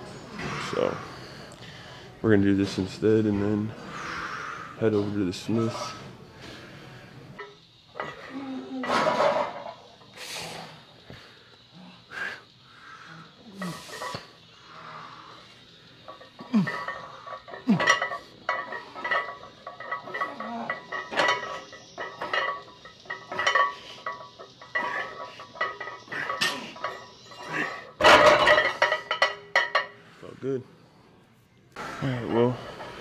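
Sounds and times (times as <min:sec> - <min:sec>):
weight plates clinking: 0:16.0 - 0:30.0.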